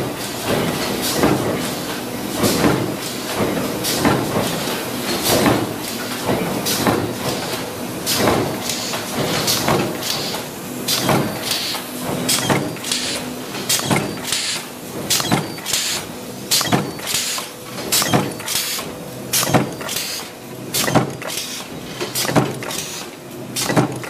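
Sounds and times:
steady machine hum: 0.0 - 24.0
power presses stamping metal: 0.3 - 24.0.

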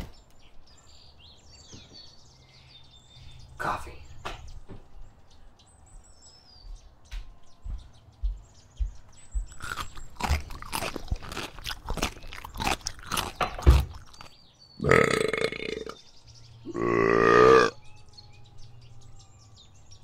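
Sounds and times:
loud crunching chewing: 9.3 - 16.0, 16.6 - 17.8
faint bird chirps: 14.1 - 20.0.

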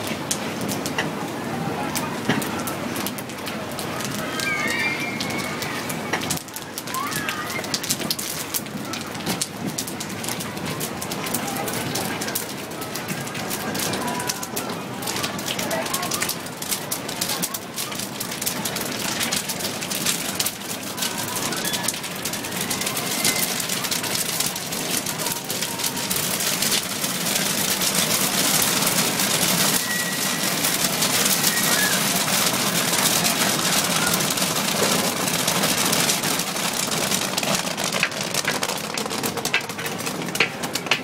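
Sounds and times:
corn popping in a kettle: 15.1 - 41.0.

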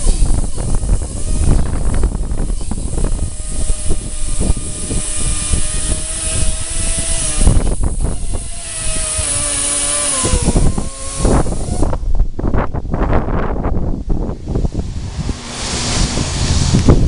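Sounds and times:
electric motors whining: 0.0 - 13.6.

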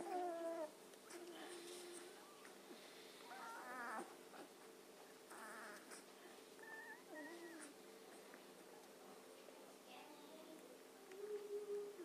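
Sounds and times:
puppies whimpering: 0.0 - 2.2, 3.3 - 4.5, 5.3 - 7.8.

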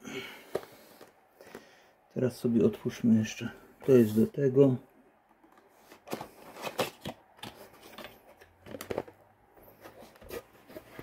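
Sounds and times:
cardboard box clicks and rustles: 5.4 - 11.0.

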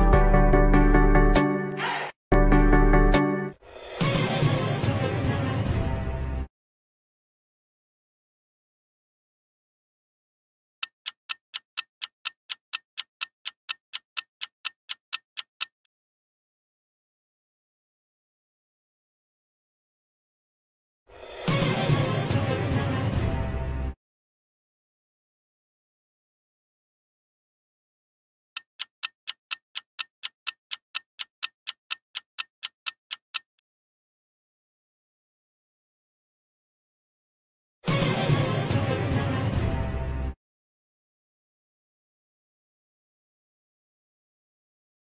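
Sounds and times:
clock ticking: 10.8 - 15.9, 28.6 - 33.6.

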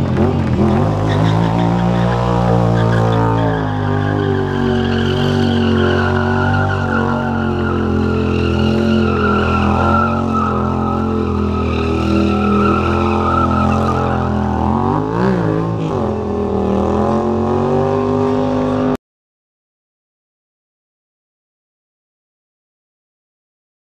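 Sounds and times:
motorcycle engine revving high: 0.0 - 19.0
tyre squeal: 0.8 - 15.5.

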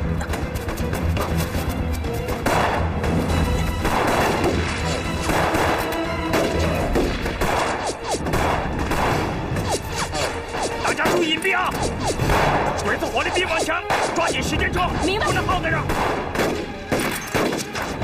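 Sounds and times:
dramatic background music: 0.0 - 18.0
rifle and pistol shots: 2.4 - 3.0, 3.8 - 9.6, 11.0 - 12.9, 15.4 - 18.0.

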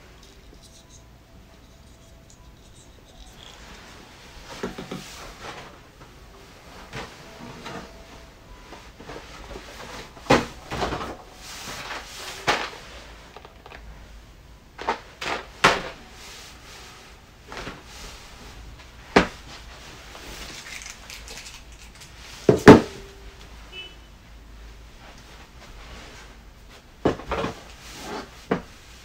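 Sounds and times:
knocks and clicks of packaging: 4.6 - 5.2, 20.4 - 23.1.

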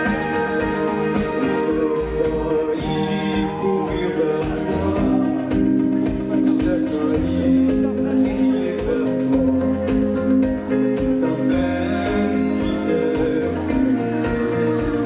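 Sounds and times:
band playing: 0.0 - 15.0
people singing together: 1.4 - 5.7.

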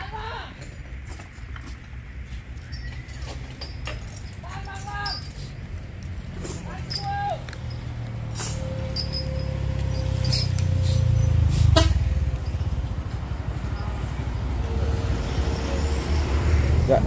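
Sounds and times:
vehicle engine passing by: 5.4 - 17.0.

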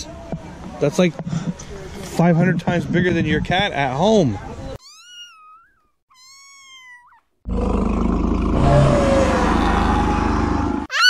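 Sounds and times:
kitten meowing: 4.8 - 7.2
tiger roar: 7.5 - 10.9.

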